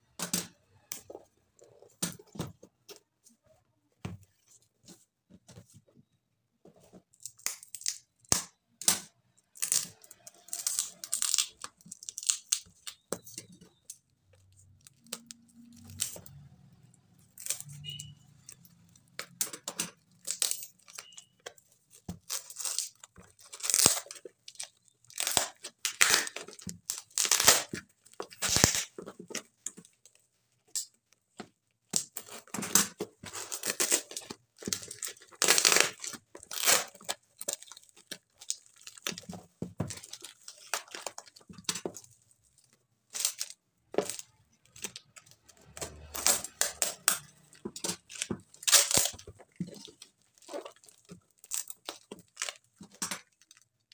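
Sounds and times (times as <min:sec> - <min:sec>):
packing tape ripping: 0:07.4 - 0:13.4, 0:17.2 - 0:21.2, 0:22.2 - 0:29.0, 0:31.9 - 0:41.8, 0:43.2 - 0:53.6
plastic crinkling: 0:09.4 - 0:53.9.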